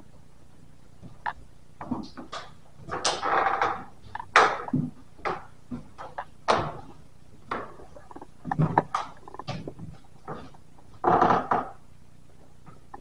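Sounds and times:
irregular knocks and clicks: 7.5s - 11.8s.

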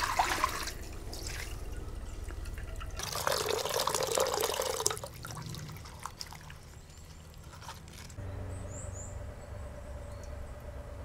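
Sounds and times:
steady low hum: 0.0s - 3.6s, 8.2s - 11.0s
water drips: 0.0s - 7.7s
water running and splashing: 0.0s - 8.2s.

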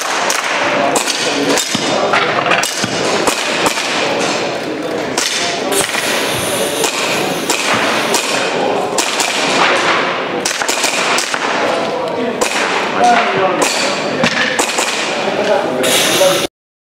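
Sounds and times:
airsoft pistol shots: 0.0s - 4.4s, 5.2s - 11.7s, 12.4s - 12.9s, 13.6s - 15.2s
steady background noise: 0.0s - 16.5s.

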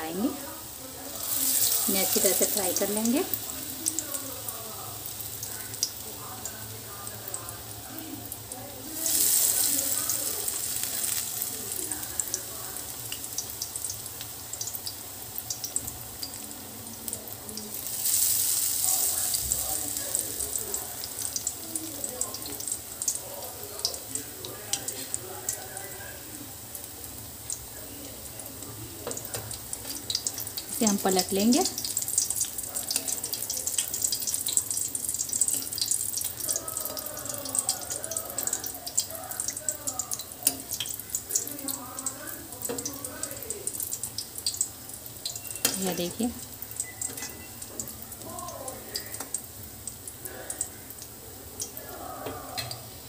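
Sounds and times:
deep-frying in hot oil: 0.0s - 53.0s
oil crackling: 0.1s - 52.0s.

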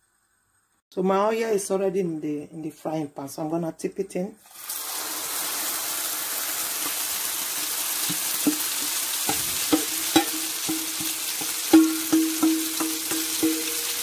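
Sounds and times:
hot oil sizzling in a frying pan: 4.4s - 14.0s
metal bowl tapped with ringing knocks: 8.1s - 14.0s.

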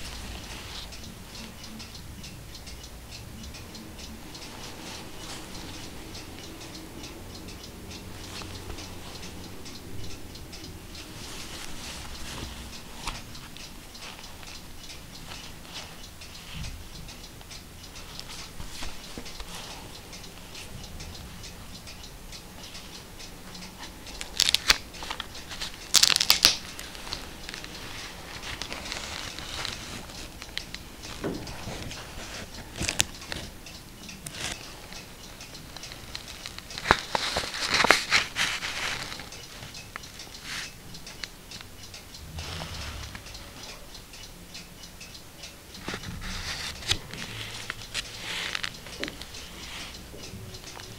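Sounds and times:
book paper crackling rustles: 11.2s - 13.2s, 24.2s - 30.3s, 35.8s - 39.7s, 45.9s - 48.7s
gloves rubbing on book: 11.2s - 13.2s.

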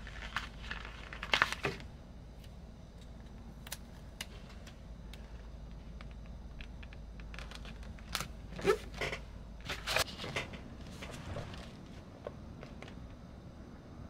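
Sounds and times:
paper rustling: 0.0s - 1.9s, 5.8s - 8.9s, 9.6s - 13.0s
low background hum: 0.0s - 14.0s.

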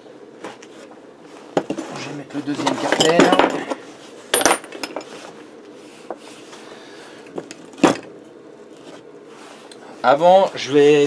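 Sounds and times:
metal tools clinking on workbench: 2.6s - 3.8s, 4.4s - 5.1s.

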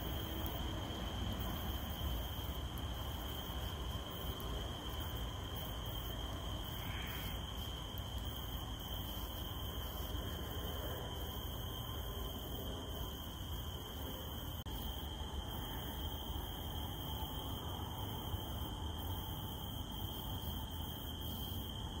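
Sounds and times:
rain falling: 0.0s - 10.6s
cicadas droning: 0.0s - 22.0s.

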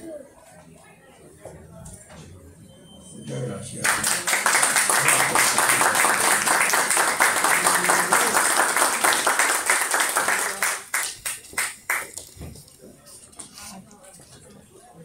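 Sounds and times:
audience applauding: 3.8s - 12.2s.

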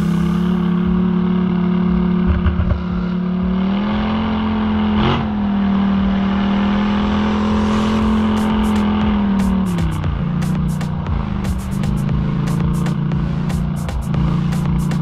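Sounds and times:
atv engine running: 0.0s - 15.0s.

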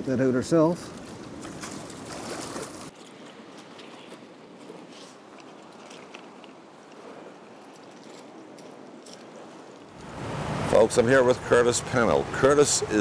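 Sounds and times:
river rapids rushing: 10.0s - 13.0s.

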